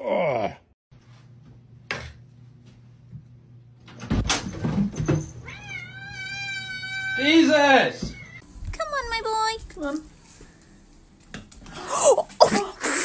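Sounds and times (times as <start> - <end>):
cat meowing: 5.4 - 7.5.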